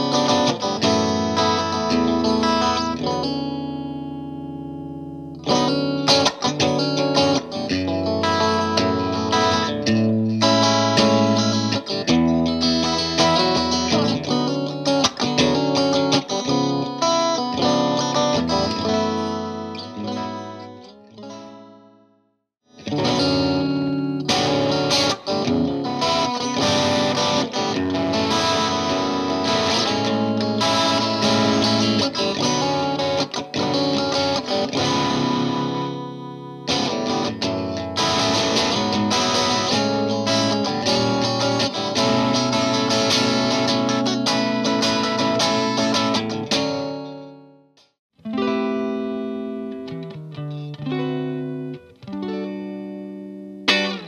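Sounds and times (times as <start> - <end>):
electric guitar chords and notes: 0.0 - 54.0.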